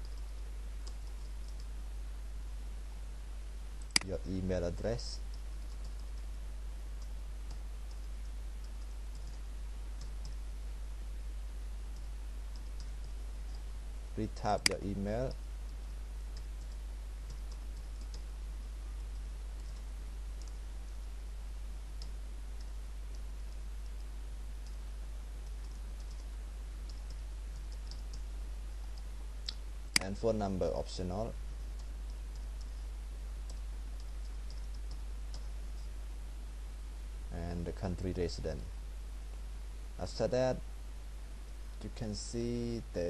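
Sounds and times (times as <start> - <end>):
steady low hum: 0.0 - 43.0
keyboard typing clicks: 3.8 - 4.1, 16.3 - 18.3, 25.4 - 28.3, 33.5 - 35.9.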